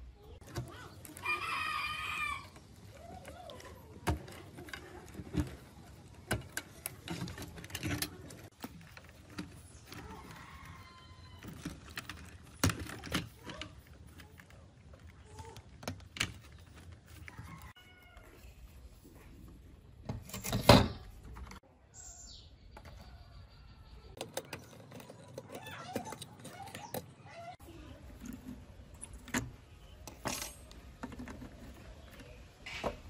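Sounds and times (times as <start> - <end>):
plastic clatter: 2.6 - 17.8, 24.1 - 33.0.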